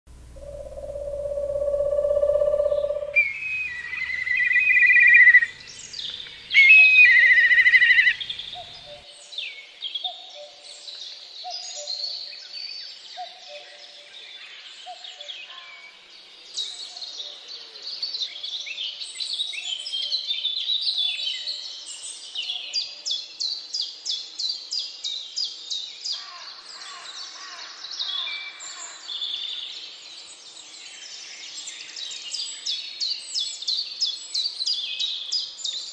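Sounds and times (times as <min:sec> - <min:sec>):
low repeated bird note: 0:00.1 - 0:05.5
fast bird trill: 0:00.3 - 0:05.5
loud whistled bird phrases: 0:00.4 - 0:05.6, 0:06.5 - 0:09.0
birds singing and calling: 0:00.4 - 0:35.9.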